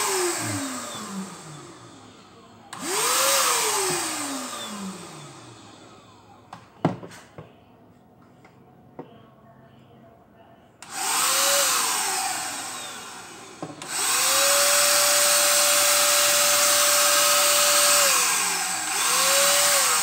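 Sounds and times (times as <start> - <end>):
paint spray gun motor whining: 0.0 - 5.8, 10.8 - 20.0.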